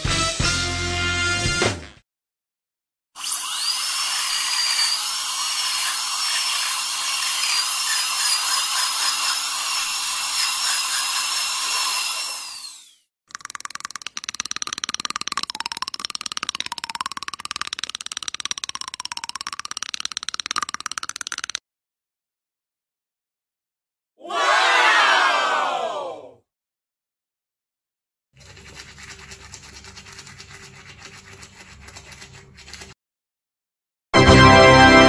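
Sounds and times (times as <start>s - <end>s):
dental drill whine: 3.2s - 16.0s.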